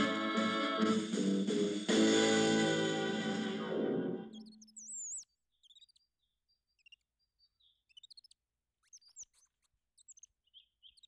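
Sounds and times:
faint bird chirps: 0:04.2 - 0:11.0.

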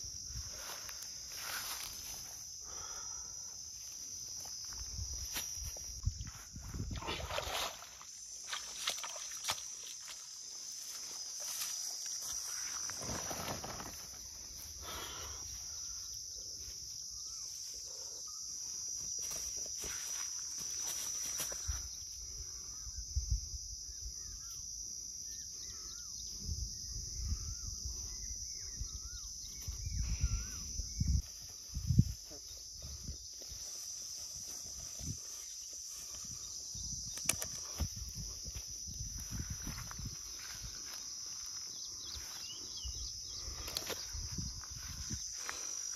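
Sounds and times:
insects droning: 0:00.0 - 0:45.9.

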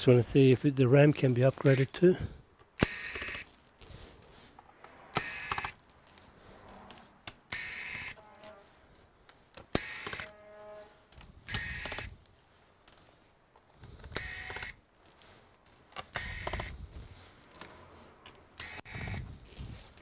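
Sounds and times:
electric screwdriver bursts: 0:02.8 - 0:03.5, 0:05.1 - 0:05.8, 0:07.5 - 0:08.2, 0:09.6 - 0:10.3, 0:11.4 - 0:12.1, 0:14.0 - 0:14.8, 0:16.0 - 0:16.8, 0:18.6 - 0:19.2.

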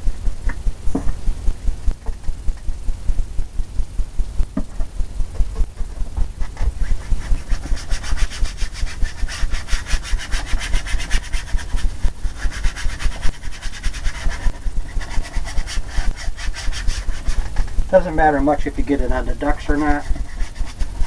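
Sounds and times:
paintbrush scrubbing on canvas: 0:05.8 - 0:21.0.

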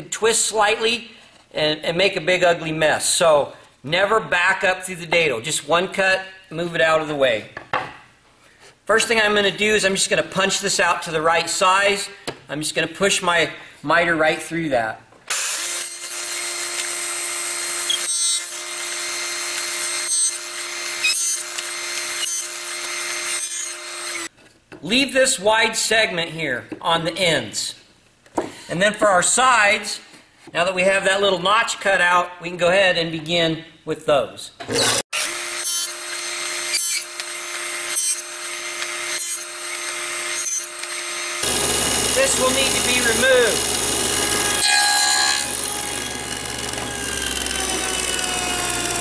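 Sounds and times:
table saw cutting wood: 0:15.3 - 0:24.3, 0:34.7 - 0:49.0.

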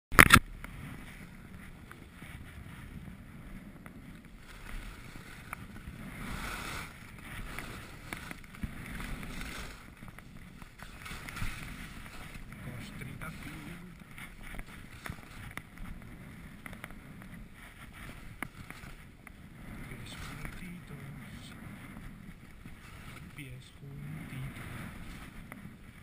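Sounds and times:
skis scraping over snow: 0:00.4 - 0:26.0
wind buffeting microphone: 0:00.4 - 0:26.0.

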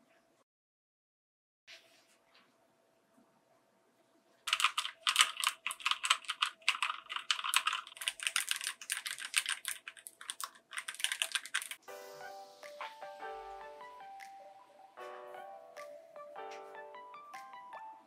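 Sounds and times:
mechanical keyboard typing: 0:04.5 - 0:11.8.

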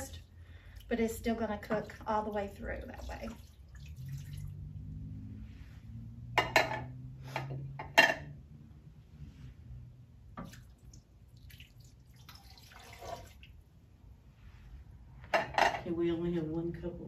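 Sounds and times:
liquid splashing into a pot: 0:02.8 - 0:04.6, 0:10.4 - 0:13.6.

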